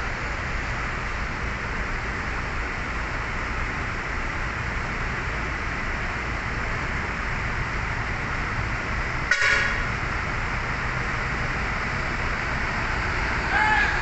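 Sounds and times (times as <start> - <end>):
diesel coach engine running: 0.0 - 14.0
short horn toot: 9.3 - 9.8.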